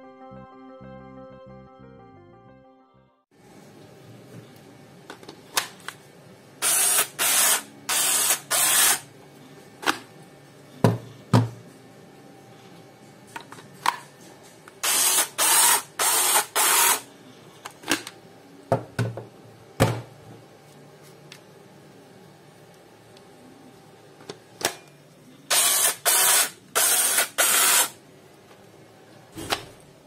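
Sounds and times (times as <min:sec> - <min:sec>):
rivet tool motor bursts: 0:06.6 - 0:09.0, 0:14.8 - 0:17.1, 0:25.5 - 0:28.0.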